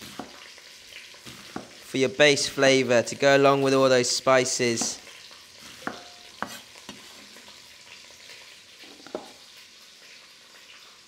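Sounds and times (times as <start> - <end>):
chicken sizzling in a pan: 0.0 - 11.0
cleaver knocking on chopping board: 5.8 - 6.6.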